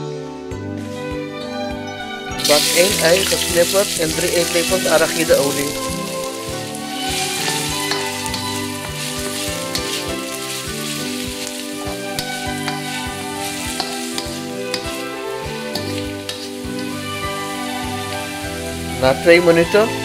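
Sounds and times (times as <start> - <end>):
background music: 0.0 - 20.0
spatula scraping a wok: 2.4 - 19.0
onion sizzling in oil: 2.4 - 20.0.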